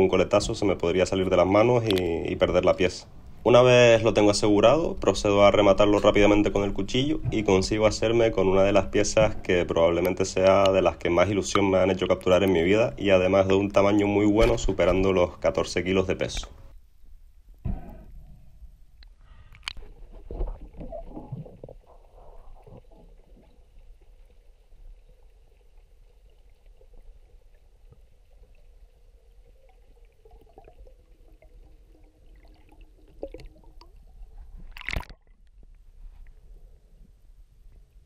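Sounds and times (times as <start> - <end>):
muffled underwater sloshing: 0.0 - 15.6, 19.8 - 38.0
faint steady hum: 0.0 - 38.0
loud thump: 17.6 - 18.1.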